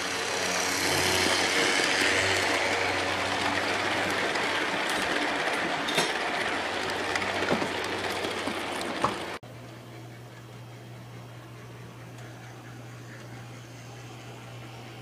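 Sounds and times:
model train cars rattling on track: 0.0 - 9.4
steady hum: 0.0 - 15.0.

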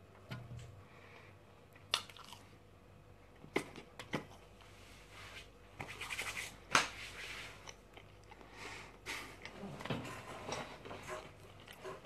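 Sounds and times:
person chewing with mouth sounds: 1.9 - 2.6.

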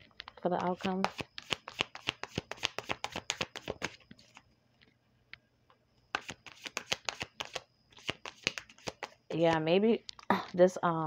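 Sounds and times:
cards being shuffled: 0.3 - 4.4, 6.1 - 9.6.

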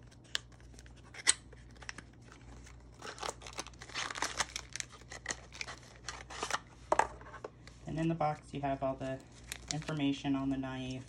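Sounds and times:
cardboard crinkling and rustling: 0.0 - 7.4, 8.2 - 11.0.

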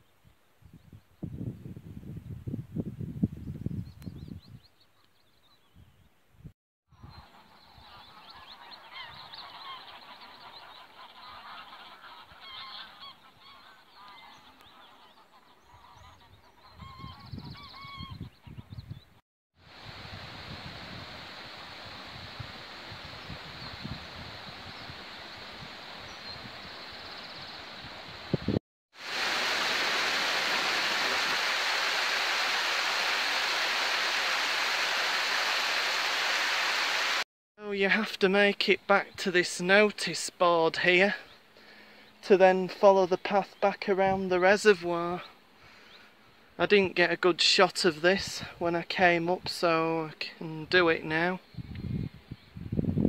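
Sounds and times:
wind rumbling on microphone: 0.2 - 4.7, 15.6 - 37.2, 51.4 - 53.0
geese honking: 7.3 - 17.1
stream running over stones: 29.0 - 37.2.

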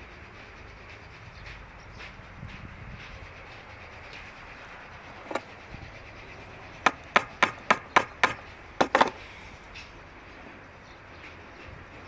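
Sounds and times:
hammer striking wood chisel: 6.8 - 9.2.

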